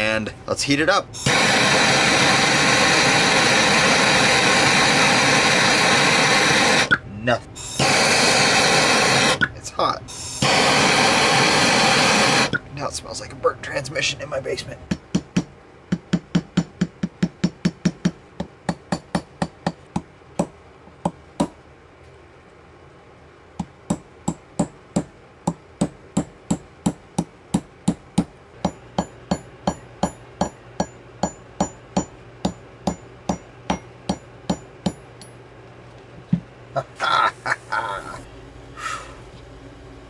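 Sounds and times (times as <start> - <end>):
hammer tapping punch on steel: 14.9 - 21.6, 23.6 - 35.4.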